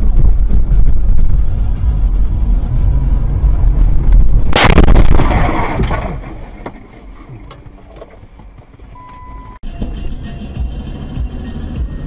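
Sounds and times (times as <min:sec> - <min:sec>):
crunching and rattling: 0:03.6 - 0:08.9
car collision impact: 0:04.5 - 0:09.0.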